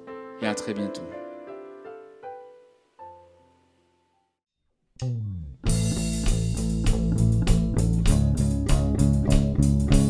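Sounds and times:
soft piano music: 0:00.0 - 0:04.4.

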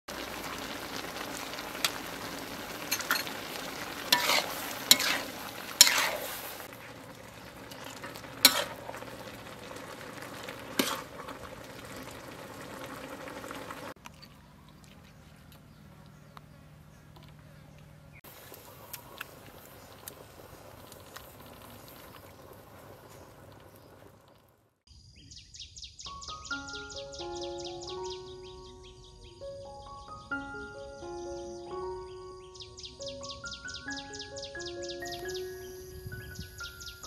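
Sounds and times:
food sizzling in a wok: 0:00.1 - 0:14.0, 0:18.3 - 0:24.4
metal spatula scraping pan: 0:04.0 - 0:06.7, 0:07.8 - 0:09.1, 0:10.7 - 0:11.4.

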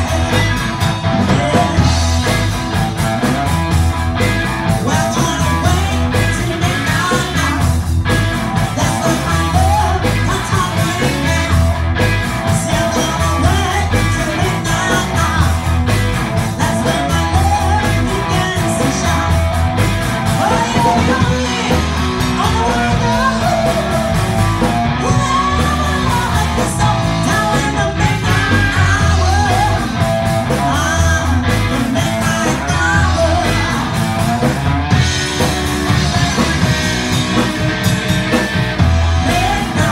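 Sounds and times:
drums with steady beat: 0:00.0 - 0:39.9
electric bass: 0:00.0 - 0:39.9
electric guitar: 0:00.0 - 0:39.9
woman singing into a microphone: 0:25.0 - 0:29.9.

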